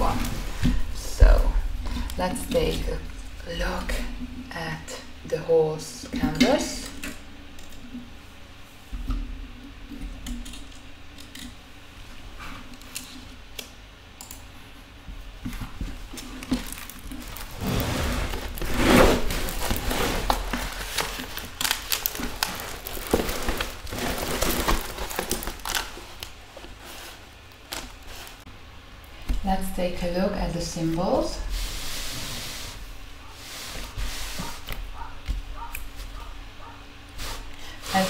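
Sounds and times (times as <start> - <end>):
plastic film rustling and crinkling: 15.6 - 28.4.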